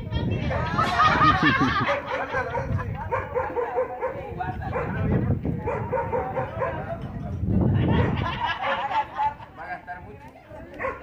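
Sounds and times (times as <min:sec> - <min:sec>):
dog barking: 0:01.8 - 0:07.0, 0:08.0 - 0:08.9, 0:10.8 - 0:11.0.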